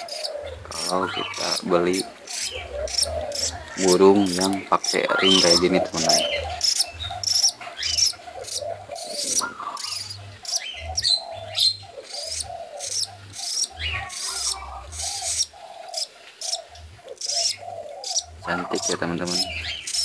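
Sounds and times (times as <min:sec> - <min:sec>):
budgerigar chirping: 0:00.0 - 0:20.0.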